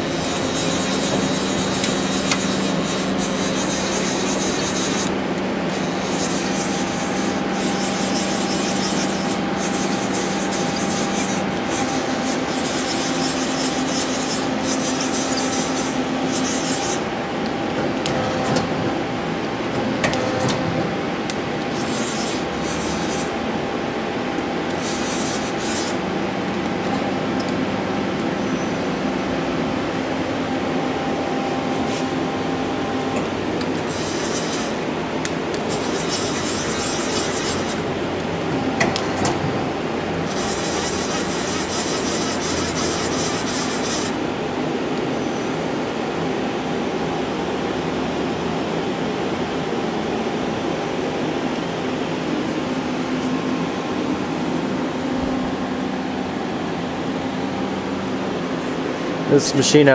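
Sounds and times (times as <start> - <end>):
machine tones: 0.0 - 17.0, 38.4 - 44.2
machine hum and hiss: 0.0 - 59.9.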